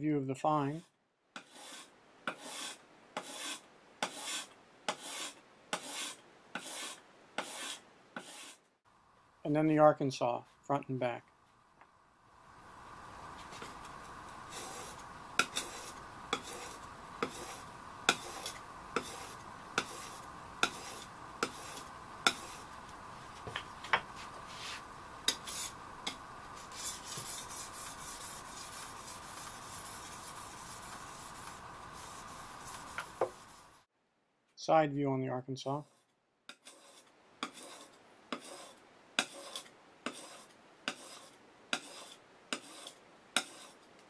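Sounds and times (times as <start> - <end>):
blade rubbing on sharpening stone: 1.4 - 8.6, 14.5 - 22.7, 24.5 - 33.7, 35.9 - 43.8.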